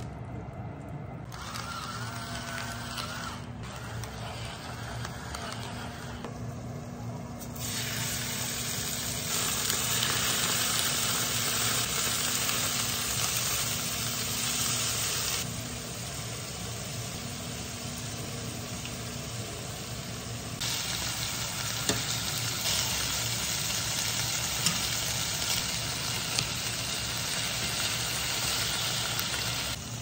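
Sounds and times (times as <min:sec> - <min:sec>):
electric pepper mill whirring: 0:01.2 - 0:06.4, 0:09.3 - 0:15.5, 0:20.6 - 0:30.0
meat sizzling in a frying pan: 0:07.6 - 0:30.0.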